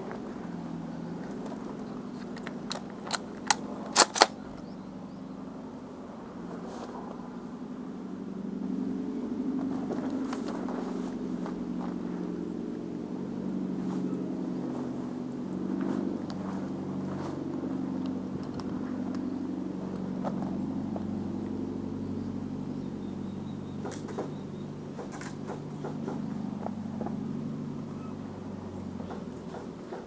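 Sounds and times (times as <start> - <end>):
engine droning: 0.0 - 30.0
sharp clicks: 2.1 - 4.7.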